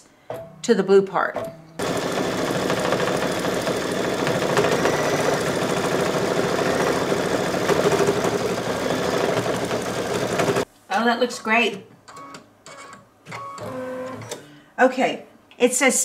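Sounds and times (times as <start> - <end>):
embroidery machine stitching: 1.8 - 10.6.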